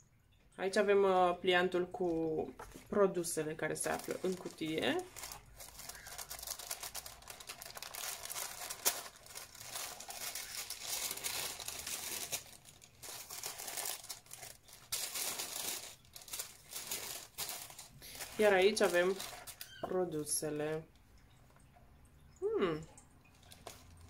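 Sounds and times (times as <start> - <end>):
tissue paper rustling: 3.6 - 19.9, 23.4 - 23.9.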